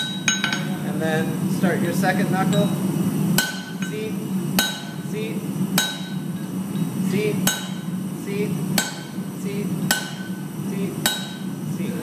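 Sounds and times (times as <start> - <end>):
steady low hum: 0.0 - 12.0
hammer blows on anvil: 3.4 - 4.0, 4.6 - 5.1, 5.8 - 6.5, 7.4 - 8.0, 8.8 - 9.2, 9.8 - 11.6.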